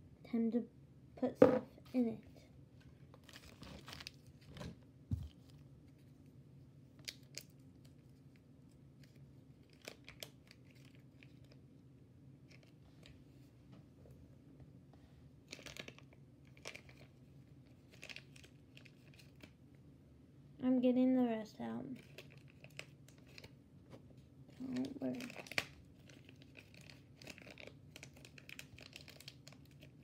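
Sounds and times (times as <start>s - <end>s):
faint low room hum: 0.0s - 30.0s
quiet crinkles and clicks: 6.9s - 11.7s, 12.4s - 13.9s, 15.4s - 19.6s, 21.9s - 30.0s.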